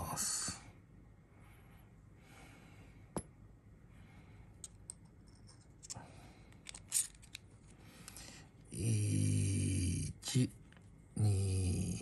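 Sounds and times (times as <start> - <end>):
small metallic clicks: 4.6 - 8.2.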